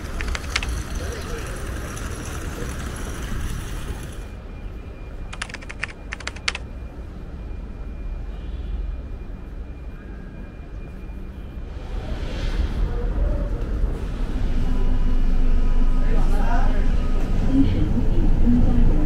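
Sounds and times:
rapid sharp clicks: 0.0s - 1.0s, 5.3s - 6.6s
low city rumble: 0.0s - 19.0s.

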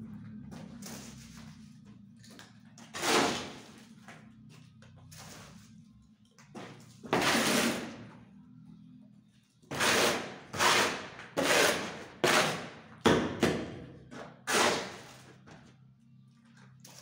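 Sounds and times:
shovel scraping concrete: 2.9s - 3.8s, 7.0s - 8.0s, 9.7s - 12.8s, 14.4s - 15.3s.

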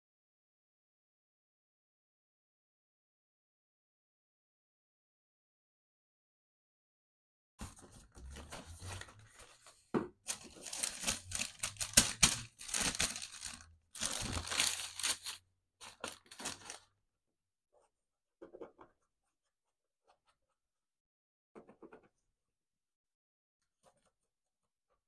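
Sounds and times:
tissue paper rustling: 7.6s - 16.9s.

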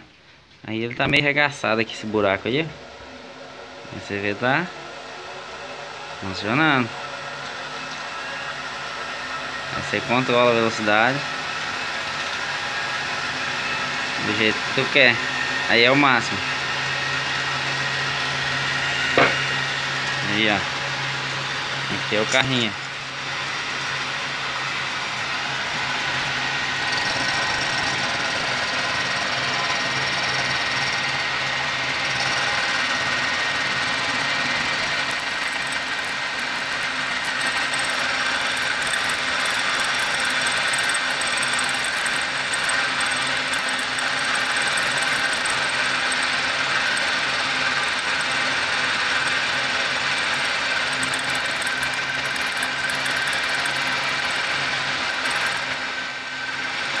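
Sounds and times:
lathe mechanical hum: 16.4s - 57.0s
thin high whine: 32.3s - 57.0s.

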